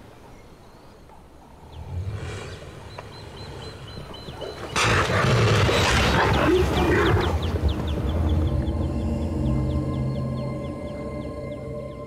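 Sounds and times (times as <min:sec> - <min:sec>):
low rumble: 0:06.7 - 0:12.0.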